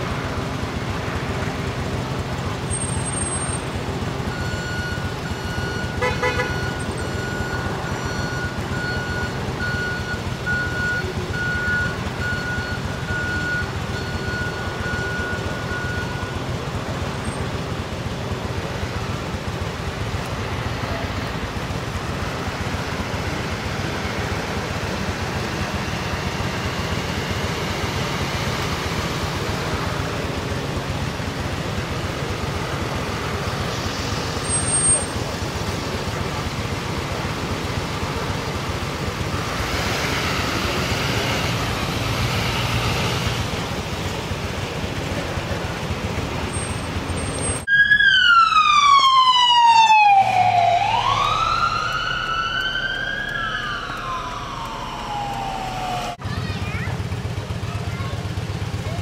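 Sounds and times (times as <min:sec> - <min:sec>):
low engine hum: 0:00.0 - 0:59.0
faint voices: 0:55.7 - 0:59.0.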